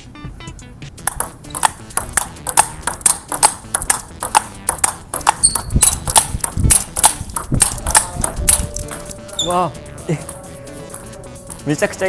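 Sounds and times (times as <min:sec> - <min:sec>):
low thuds: 0:01.0 - 0:09.3
table tennis ball clicking: 0:01.0 - 0:09.6, 0:10.3 - 0:11.7.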